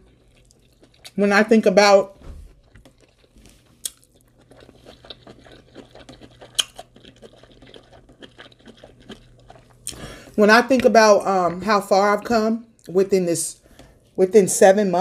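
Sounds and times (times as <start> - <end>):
sharp chewing crunches: 0.0 - 1.2, 2.6 - 10.0
wet chewing mouth sounds: 0.0 - 1.2, 2.6 - 10.1.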